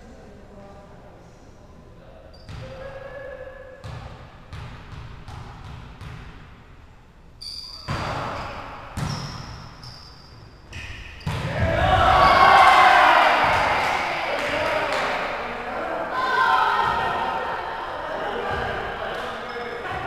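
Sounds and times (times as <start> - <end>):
sneaker squeaks: 2.3 - 4.0, 7.4 - 12.5, 19.4 - 20.0
volleyball thuds: 10.8 - 12.4.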